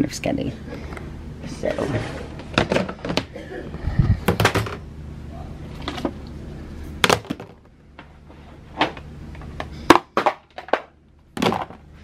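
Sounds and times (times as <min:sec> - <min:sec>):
plastic items knocking: 0:02.5 - 0:03.3, 0:04.2 - 0:04.8, 0:07.0 - 0:07.7, 0:09.9 - 0:11.8.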